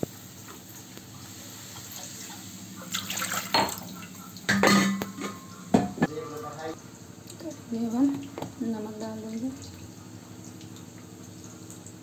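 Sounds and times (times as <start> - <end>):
water pouring into a pan: 1.6 - 4.5
steel utensils clinking: 4.5 - 6.0.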